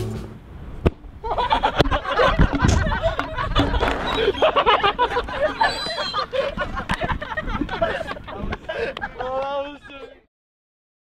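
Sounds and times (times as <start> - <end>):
young people laughing and chattering: 1.2 - 10.3
sharp knocks: 1.8 - 4.6.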